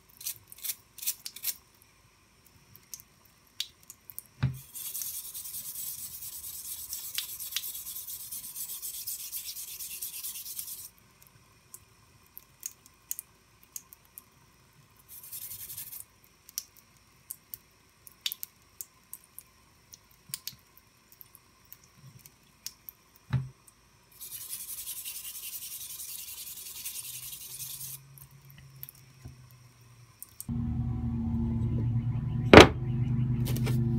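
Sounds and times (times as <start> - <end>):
small water drips: 2.7 - 4.4, 11.2 - 14.4, 16.2 - 23.8, 28.1 - 30.5
bristle brush scrubbing metal blade: 4.6 - 10.9, 24.2 - 28.0.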